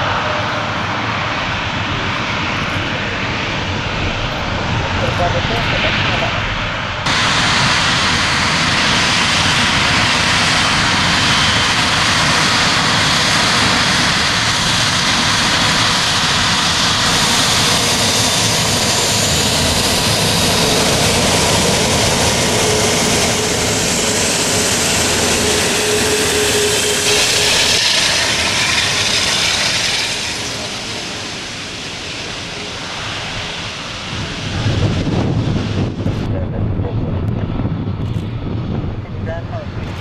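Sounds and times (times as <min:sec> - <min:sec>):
faint high jet whine: 0:00.0 - 0:40.0
jet engines rushing: 0:00.0 - 0:40.0.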